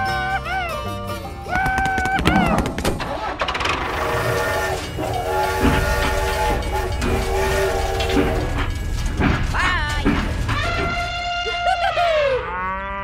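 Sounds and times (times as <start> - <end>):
toy train running on track: 3.6 - 11.8
electronic train horn blasts: 4.0 - 9.3.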